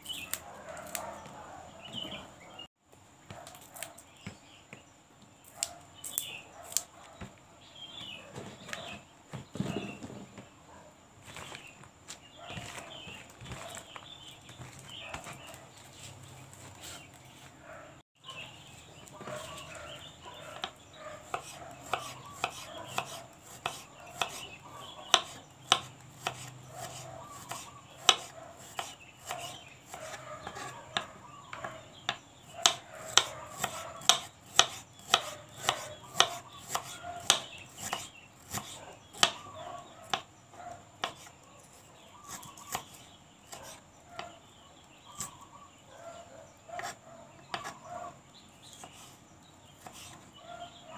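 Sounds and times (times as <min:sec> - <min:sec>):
knife chopping stems: 0:00.0 - 0:01.3, 0:11.2 - 0:17.5, 0:19.0 - 0:40.3, 0:41.0 - 0:44.4, 0:46.8 - 0:47.8, 0:49.8 - 0:50.2.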